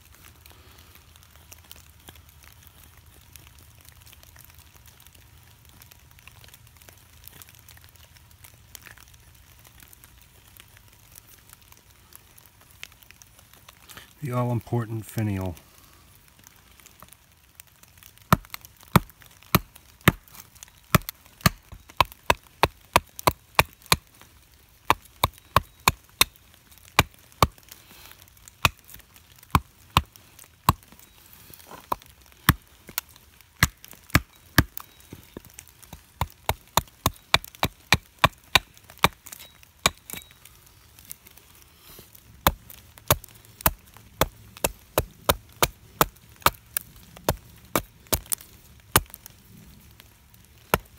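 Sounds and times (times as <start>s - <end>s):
axe chopping wood: 18.3s - 24.1s, 24.9s - 27.7s, 28.6s - 30.9s, 33.6s - 34.8s, 35.4s - 40.3s, 42.4s - 46.6s, 47.2s - 49.2s.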